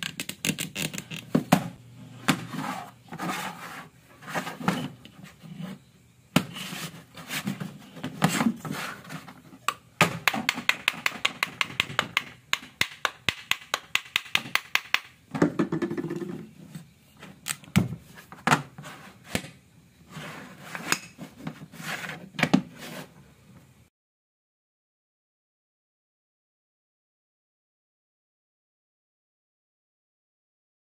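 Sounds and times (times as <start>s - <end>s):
wooden blocks knocking: 10.0s - 16.4s.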